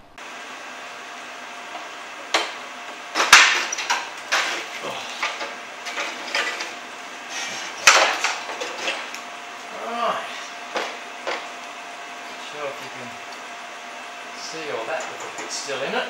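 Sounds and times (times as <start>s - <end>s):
metal plate clanking and rattling: 3.2s - 6.8s, 7.6s - 9.2s.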